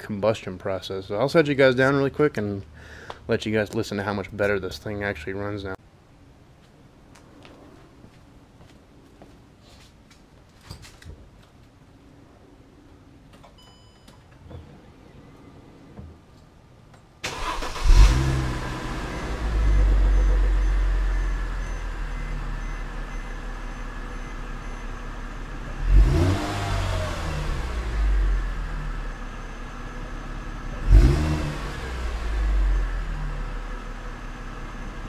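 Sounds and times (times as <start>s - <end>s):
car engine starting and idling: 17.2s - 35.0s
car engine revving: 17.3s - 23.5s, 24.4s - 35.0s.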